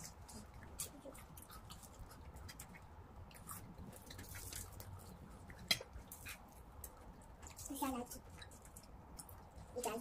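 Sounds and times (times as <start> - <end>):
chewing: 0.0 - 10.0
crisp fritters crackling: 0.0 - 10.0.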